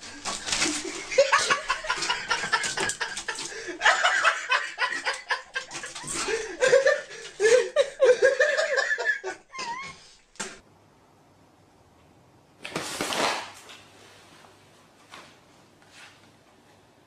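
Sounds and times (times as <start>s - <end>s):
person laughing: 0.6s - 10.1s.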